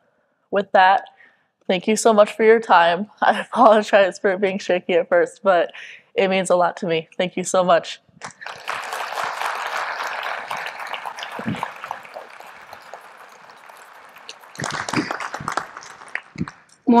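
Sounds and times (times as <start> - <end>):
audience applauding: 8.2 - 16.8.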